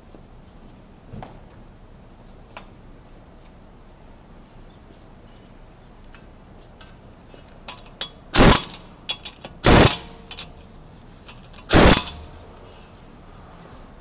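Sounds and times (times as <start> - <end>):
air tool bursts: 8.3 - 8.9, 9.6 - 10.4, 11.7 - 12.4.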